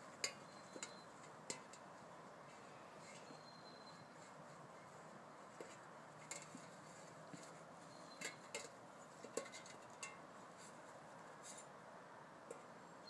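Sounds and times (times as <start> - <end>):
metal watering can clinking: 0.2 - 1.9, 5.6 - 6.7, 8.1 - 10.2.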